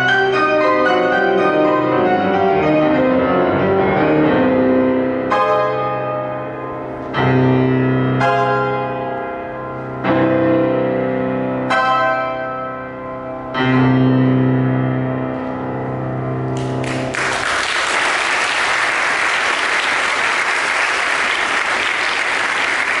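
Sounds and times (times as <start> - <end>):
piano chords: 0.0 - 23.0
audience applause: 16.6 - 23.0.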